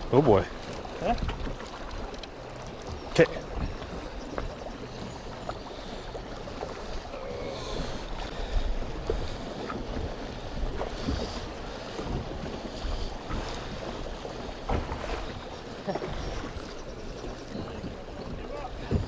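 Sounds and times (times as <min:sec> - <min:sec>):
water slapping against boat: 0:00.0 - 0:19.0
bump on boat: 0:17.5 - 0:19.0.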